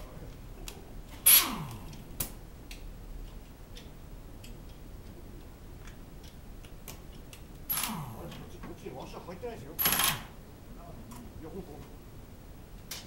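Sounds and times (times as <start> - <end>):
pneumatic tool air blast: 1.2 - 1.7.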